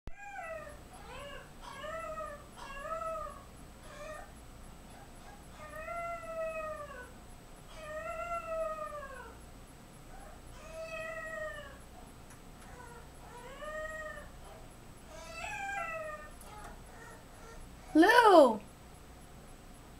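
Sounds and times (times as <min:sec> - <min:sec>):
puppy crying and wailing: 0:00.1 - 0:04.3, 0:05.0 - 0:07.1, 0:07.7 - 0:09.4, 0:10.1 - 0:11.8, 0:12.7 - 0:18.6.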